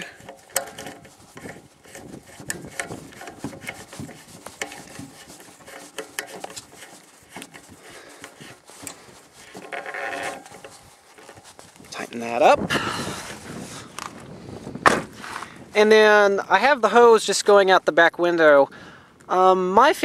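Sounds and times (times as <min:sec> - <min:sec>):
metal threads scraping and clicking: 0:00.0 - 0:12.0.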